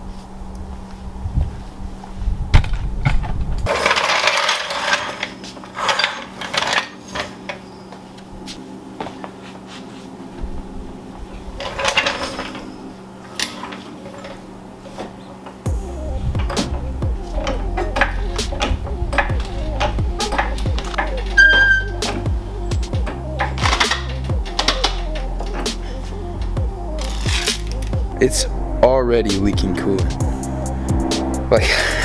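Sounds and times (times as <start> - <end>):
floor jack scraping on concrete: 3.7 - 7.4.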